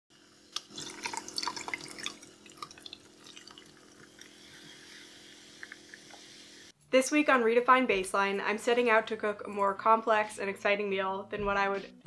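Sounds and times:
crackling fizz: 0:00.2 - 0:06.7
sparkling water pouring over ice: 0:00.6 - 0:06.7.

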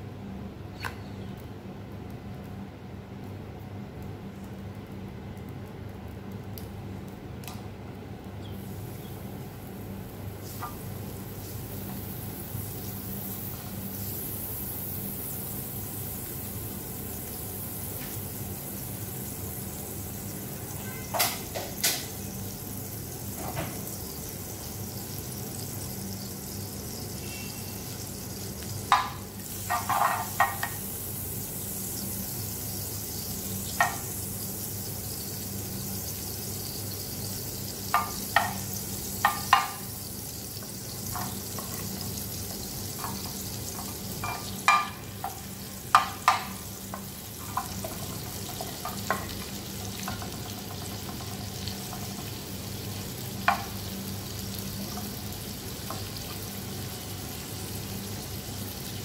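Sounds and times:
fat sizzling in a pan: 0:08.3 - 0:59.0.

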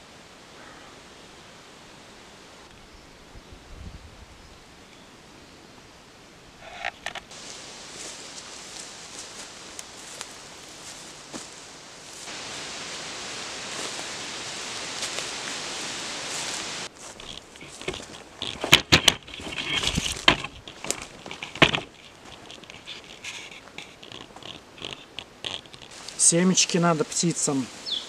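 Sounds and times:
forest ambience hiss: 0:00.0 - 0:28.0
footsteps through leaf litter: 0:07.3 - 0:18.4, 0:25.9 - 0:28.0
twigs cracking: 0:13.6 - 0:26.9.

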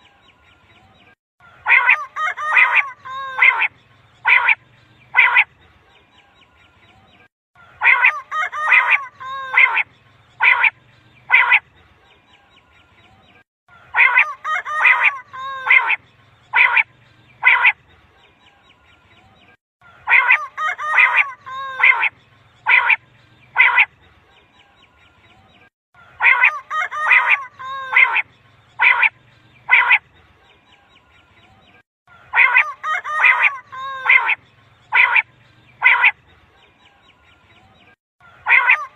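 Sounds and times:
quail calling: 0:01.5 - 0:05.5, 0:07.6 - 0:11.6, 0:13.7 - 0:17.8, 0:19.9 - 0:23.9, 0:26.0 - 0:30.0, 0:32.1 - 0:36.2, 0:38.2 - 0:38.9.

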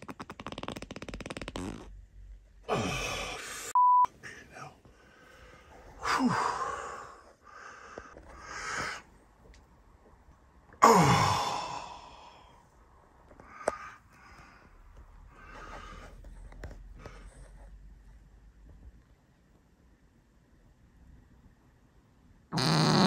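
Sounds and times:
human farts: 0:00.0 - 0:01.9, 0:22.5 - 0:23.0.

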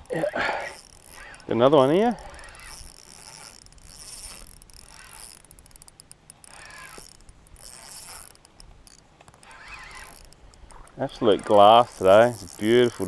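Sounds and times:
fishing reel whirring and ticking: 0:00.0 - 0:13.0.

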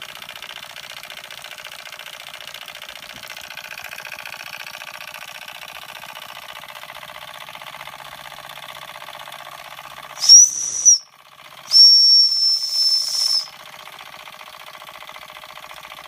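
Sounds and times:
small steam engine running: 0:00.0 - 0:16.0
steam whistle blasts: 0:10.2 - 0:11.0, 0:11.7 - 0:13.5.

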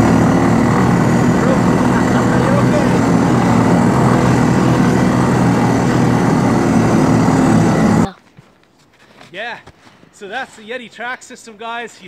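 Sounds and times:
engine running: 0:00.0 - 0:08.1.

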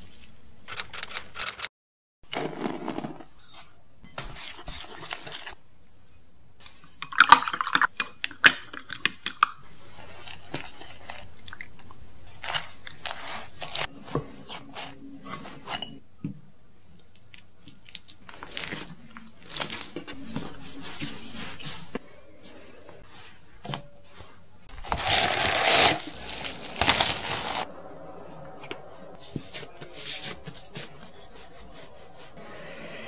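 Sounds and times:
dough being kneaded: 0:12.2 - 0:15.9, 0:23.0 - 0:27.7.

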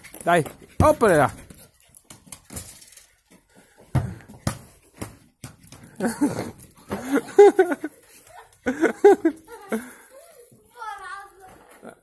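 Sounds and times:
ball knocking on tiled floor: 0:03.8 - 0:06.0.

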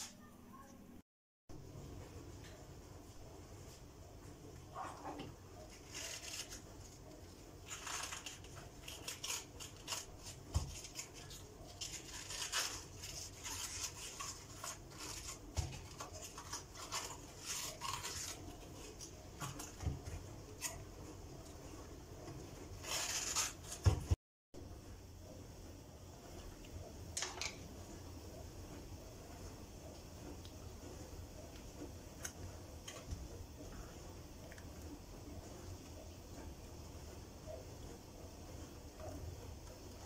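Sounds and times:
cabbage leaves crackling and squeaking: 0:05.7 - 0:06.9, 0:07.6 - 0:19.1, 0:22.8 - 0:23.8.

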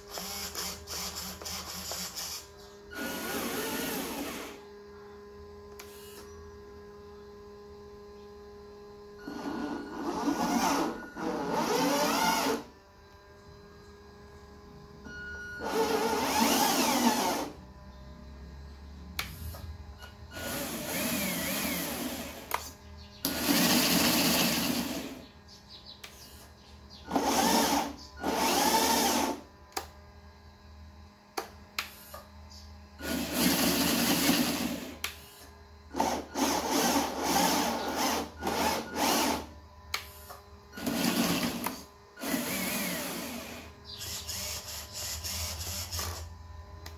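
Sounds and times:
toy truck electric motors whirring: 0:00.0 - 0:04.7, 0:05.7 - 0:06.3, 0:09.1 - 0:12.8, 0:15.5 - 0:17.6, 0:19.2 - 0:25.3, 0:26.0 - 0:29.9, 0:33.0 - 0:46.3.

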